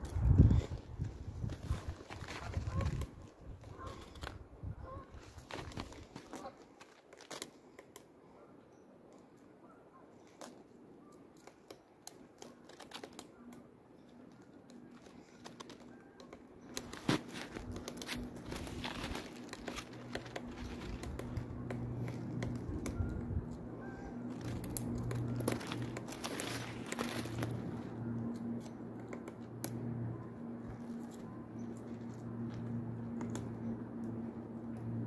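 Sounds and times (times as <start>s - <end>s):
low steady hum: 13.3s - 35.0s.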